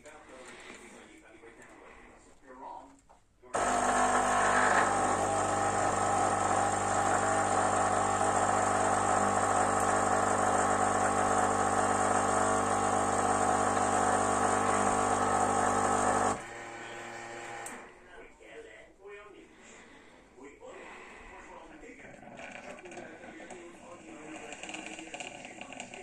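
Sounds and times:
espresso machine pump humming: 0:03.6 - 0:17.8, 0:22.2 - 0:26.0.

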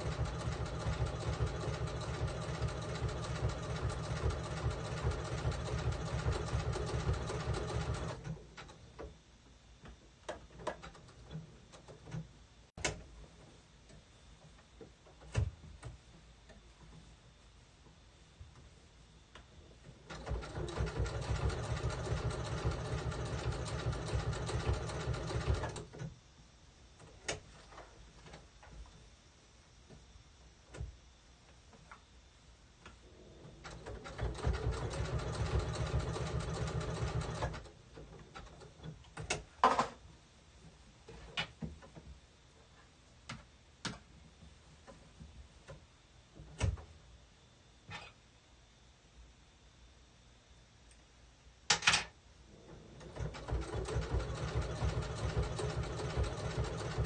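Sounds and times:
sewing machine stitching: 0:00.0 - 0:08.7, 0:20.1 - 0:26.0, 0:33.5 - 0:37.7, 0:52.6 - 0:57.0.

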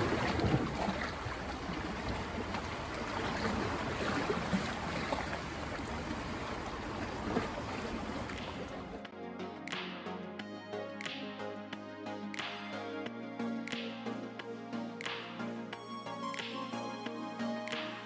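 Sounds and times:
sea waves splashing on rocks: 0:00.0 - 0:08.9
background music: 0:08.4 - 0:18.0.

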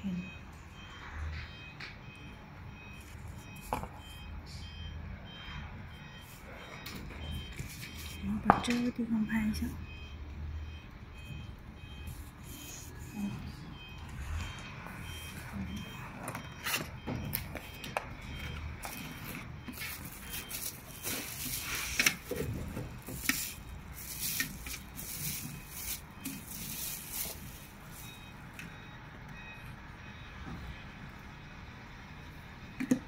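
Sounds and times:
plastic bag rustling and crinkling: 0:18.8 - 0:28.2.

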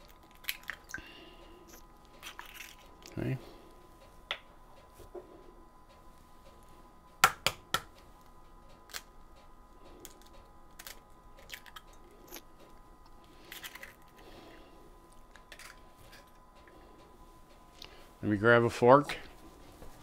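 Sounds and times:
eggshell crackling apart: 0:00.0 - 0:01.0.

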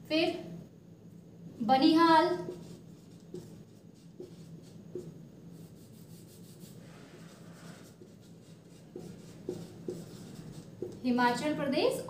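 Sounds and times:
low steady hum: 0:00.0 - 0:12.0
marker scratching on whiteboard: 0:02.3 - 0:11.2.

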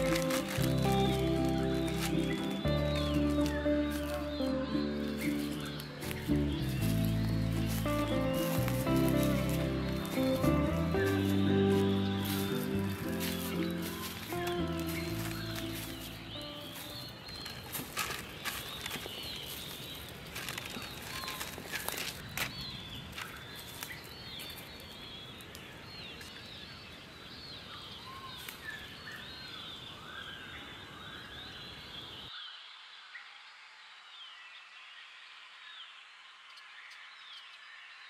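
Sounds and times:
sharp crackles: 0:00.0 - 0:26.3
outdoor background rush: 0:00.0 - 0:27.0
birds chirping: 0:00.0 - 0:32.8.

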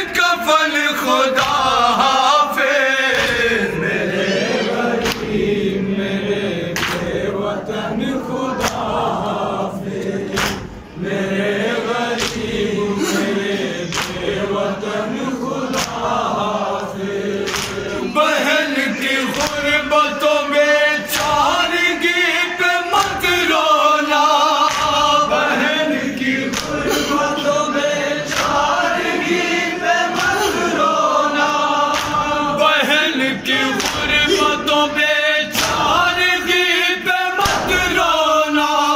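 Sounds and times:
men chanting in unison: 0:00.0 - 0:38.9
hands slapping chests: 0:05.0 - 0:05.4, 0:06.8 - 0:07.2, 0:08.6 - 0:09.0, 0:10.3 - 0:10.8, 0:12.1 - 0:12.6, 0:13.9 - 0:14.4, 0:15.7 - 0:16.1, 0:16.8 - 0:17.9, 0:24.6 - 0:25.1, 0:26.2 - 0:27.0, 0:31.9 - 0:32.3, 0:33.7 - 0:34.2, 0:35.6 - 0:35.9.

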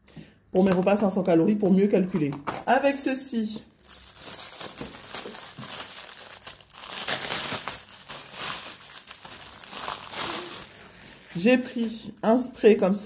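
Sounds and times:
plastic bag crinkling: 0:03.7 - 0:12.1.

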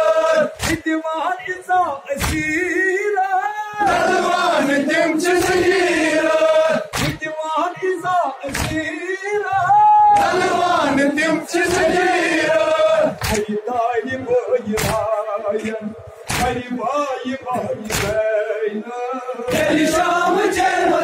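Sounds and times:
crowd of men chanting in unison: 0:00.0 - 0:21.0
hands slapping chests: 0:00.6 - 0:00.8, 0:02.2 - 0:02.5, 0:06.9 - 0:07.2, 0:08.5 - 0:08.9, 0:13.2 - 0:13.5, 0:14.8 - 0:15.1, 0:16.2 - 0:16.6, 0:17.8 - 0:18.2.

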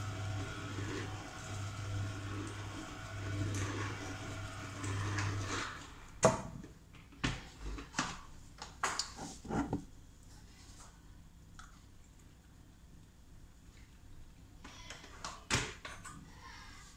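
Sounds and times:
juicer motor humming: 0:00.0 - 0:06.2.

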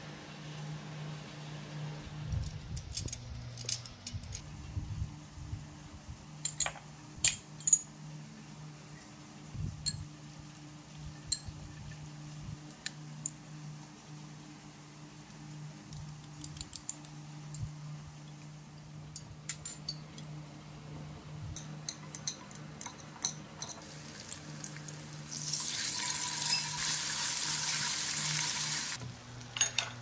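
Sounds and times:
steady low hum: 0:00.0 - 0:25.4
glass bowls and chopsticks clinking: 0:21.6 - 0:23.9, 0:26.0 - 0:27.3, 0:29.5 - 0:30.0.

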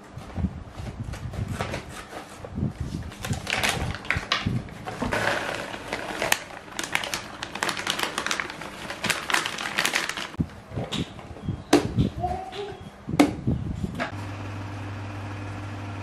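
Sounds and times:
bag crinkling: 0:03.1 - 0:10.4
kibble rattling into plastic container: 0:03.1 - 0:10.4.

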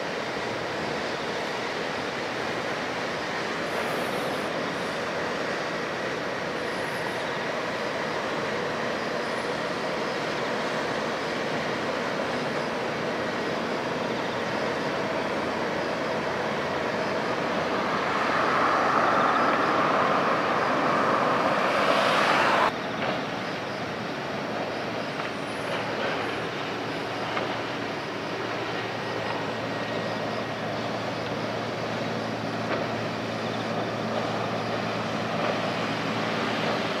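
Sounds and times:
wind: 0:00.0 - 0:37.0
rush of bow wave: 0:16.6 - 0:22.8.

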